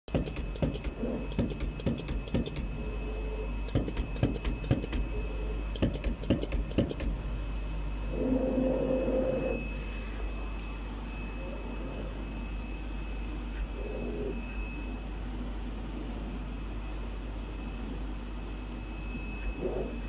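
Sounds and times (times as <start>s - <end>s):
cutting machine rapid clicking: 0.1s - 2.7s, 3.7s - 5.1s, 5.7s - 7.2s
short low hum: 0.1s - 16.5s
faint high whine: 0.1s - 20.0s.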